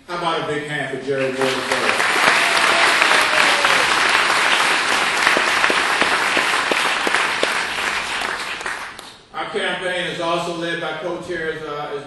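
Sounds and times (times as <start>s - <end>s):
audience applauding: 1.2s - 9.2s
loud single claps: 1.4s - 9.2s.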